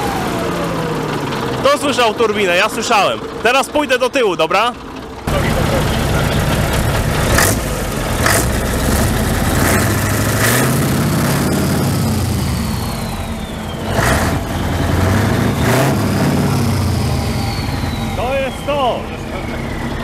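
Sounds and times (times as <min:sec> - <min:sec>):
diesel truck engine revving: 0:00.0 - 0:20.0
turbocharger whistle: 0:07.3 - 0:20.0.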